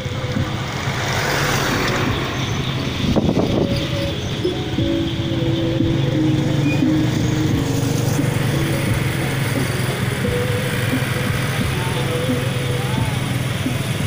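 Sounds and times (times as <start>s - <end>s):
motorcycle engines droning: 0.0s - 14.0s.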